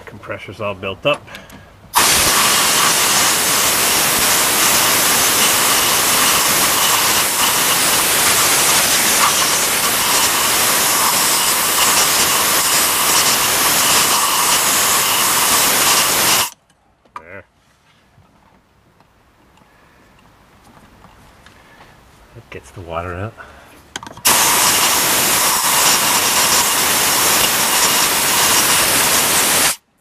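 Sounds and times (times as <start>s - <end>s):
air blow gun hissing: 1.9s - 16.5s, 24.2s - 29.8s.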